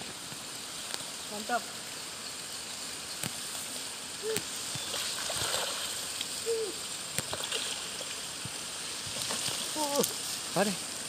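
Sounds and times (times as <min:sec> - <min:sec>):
fish splashing in water: 0:04.7 - 0:06.2.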